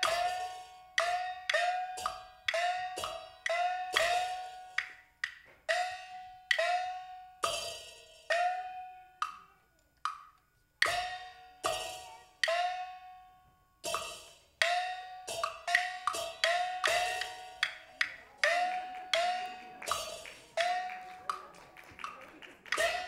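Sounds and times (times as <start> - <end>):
pitched percussion strikes: 0.0 - 23.0.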